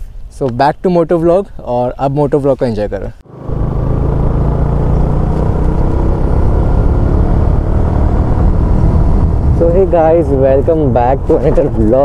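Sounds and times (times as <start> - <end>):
motorcycle engine drone: 3.2 - 11.7.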